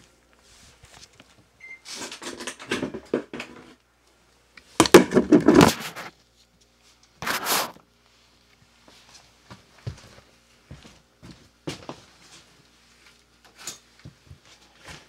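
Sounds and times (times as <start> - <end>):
rustling and scraping: 4.9 - 7.8.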